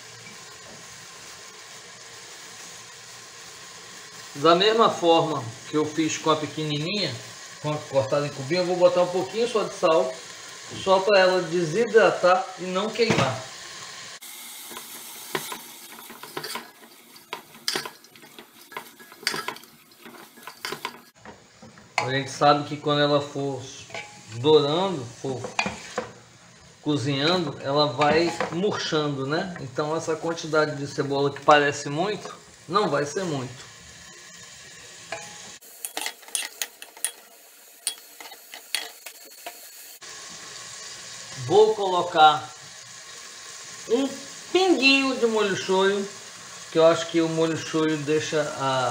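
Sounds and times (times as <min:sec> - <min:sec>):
onions sizzling: 0:00.0 - 0:48.9
spoon scraping pot: 0:14.7 - 0:22.1, 0:25.4 - 0:26.1, 0:35.1 - 0:37.2.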